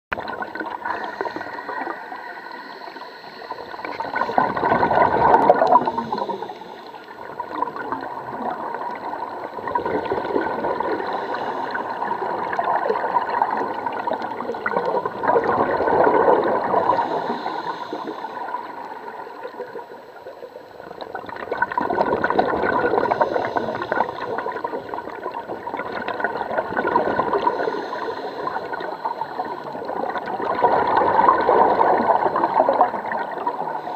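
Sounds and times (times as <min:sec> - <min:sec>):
bubbles rushing underwater: 0:00.1 - 0:02.4, 0:03.5 - 0:33.9
diver breathing through regulator: 0:00.8 - 0:04.4, 0:05.3 - 0:07.0, 0:10.8 - 0:12.5, 0:16.6 - 0:18.8, 0:23.0 - 0:24.4, 0:27.2 - 0:29.7.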